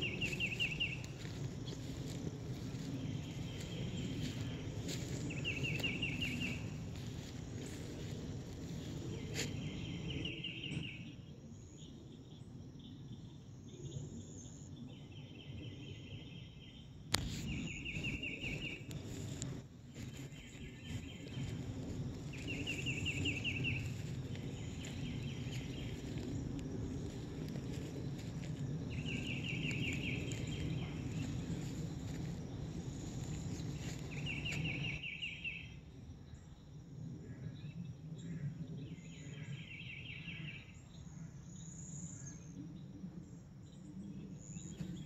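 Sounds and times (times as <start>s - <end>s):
footsteps rustling through grass: 0.0s - 10.3s, 17.1s - 35.0s.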